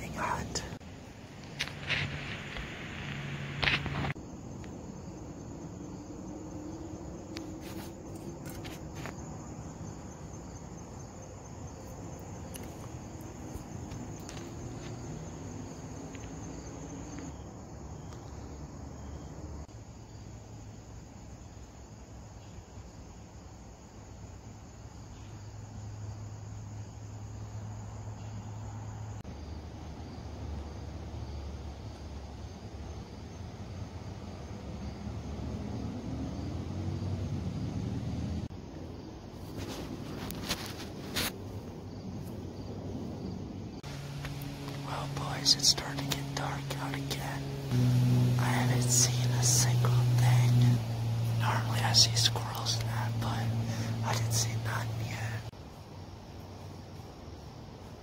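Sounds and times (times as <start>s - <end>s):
crickets chirring: 0.0s - 58.0s
low hum: 42.7s - 55.5s.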